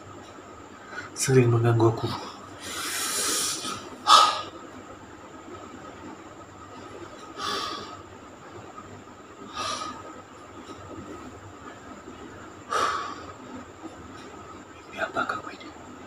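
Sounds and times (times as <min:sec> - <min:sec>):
faint steady hum: 0:00.0 - 0:16.0
man breathing heavily: 0:02.6 - 0:04.6, 0:07.4 - 0:08.0, 0:09.4 - 0:10.2, 0:12.6 - 0:13.4.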